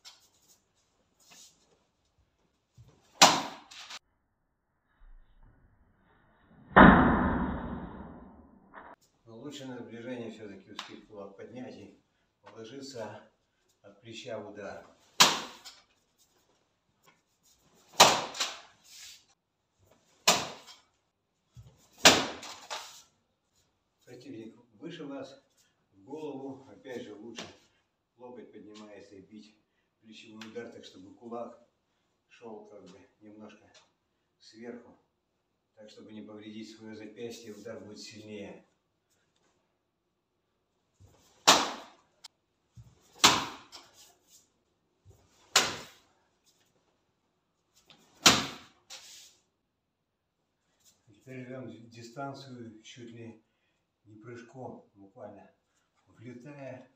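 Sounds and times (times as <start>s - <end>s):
punches slapping paper target: 3.1s - 4.0s, 15.2s - 15.8s, 17.9s - 18.7s, 20.2s - 20.8s, 21.9s - 22.9s, 41.4s - 42.0s, 43.1s - 43.9s, 45.5s - 46.0s, 48.2s - 48.8s.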